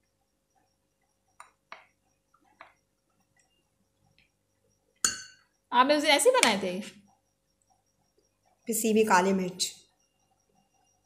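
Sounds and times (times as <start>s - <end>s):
metal spoon clinking glass bowl: 5.0s - 5.4s.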